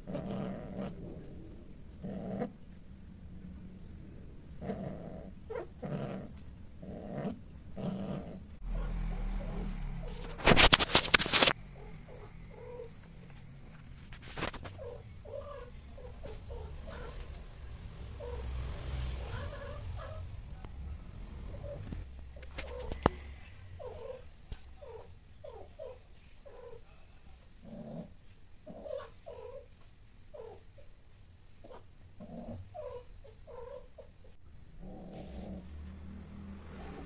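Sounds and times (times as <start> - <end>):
cat purring rumble: 0.0 - 14.1, 14.7 - 26.8, 32.1 - 37.0
cat yowling: 19.2 - 20.3.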